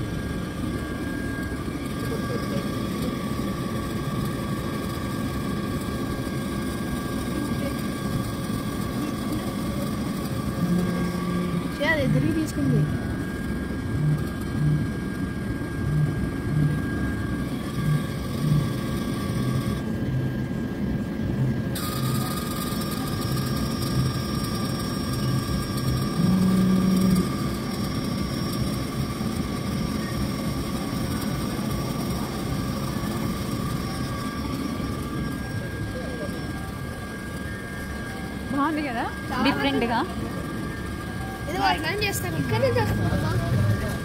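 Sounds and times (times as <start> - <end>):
pulsing low hum: 0.0 - 44.0
vending machine motors whirring: 0.0 - 44.0.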